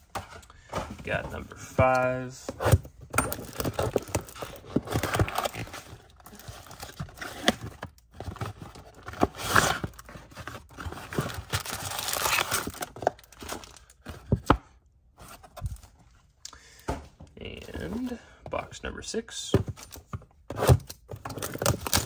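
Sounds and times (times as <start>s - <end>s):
card packs handled: 0.0s - 14.6s, 19.3s - 22.0s
plastic shrink wrap tearing: 11.5s - 13.3s.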